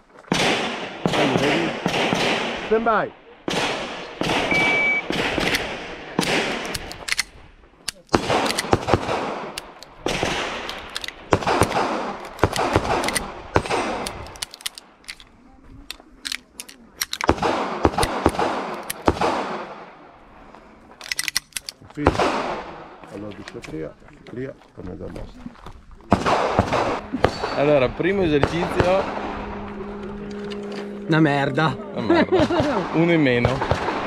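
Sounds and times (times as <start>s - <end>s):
pistol shots: 0.3s - 2.8s, 3.5s - 7.3s, 8.1s - 14.6s, 17.0s - 20.0s, 22.1s - 23.0s, 26.1s - 29.6s, 32.4s - 34.0s
shot timer beep: 4.5s - 5.1s.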